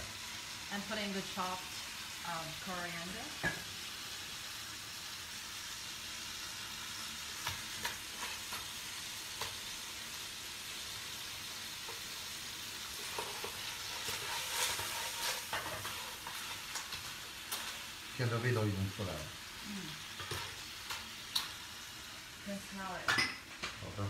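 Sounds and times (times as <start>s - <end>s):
clams sizzling in a pan: 0.0s - 24.0s
metal ladle scraping a pan: 13.0s - 16.9s.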